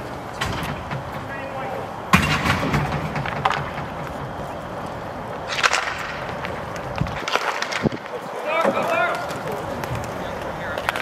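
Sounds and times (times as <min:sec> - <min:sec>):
hockey stick scraping rink: 0:01.0 - 0:11.0
hockey sticks clacking on ball: 0:02.9 - 0:11.0.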